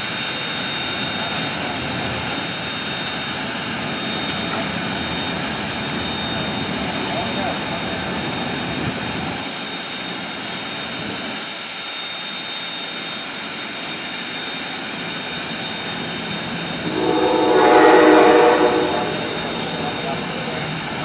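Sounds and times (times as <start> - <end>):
steam hissing: 13.8 - 21.0
loud pitched whistle tone: 16.8 - 20.8.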